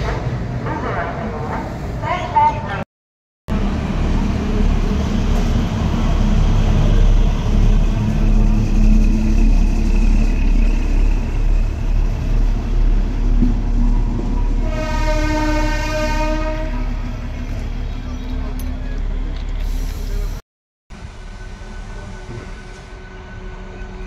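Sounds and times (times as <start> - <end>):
diesel train engine rumbling: 3.5 - 24.0
train horn: 14.6 - 17.1.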